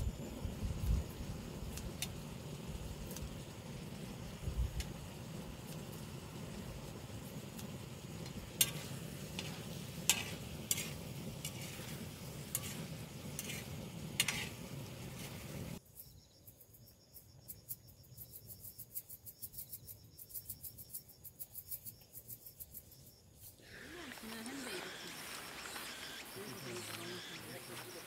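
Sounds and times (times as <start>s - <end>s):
meat sizzling on griddle pan: 0.0s - 15.8s, 23.6s - 28.0s
insects chirping: 0.0s - 28.0s.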